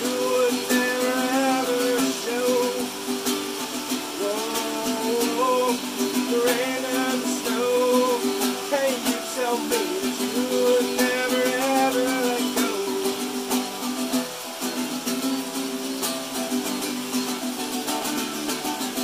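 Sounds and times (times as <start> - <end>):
man singing: 0.0 - 13.9
acoustic guitar strumming: 0.0 - 19.0
rain falling: 0.0 - 19.0.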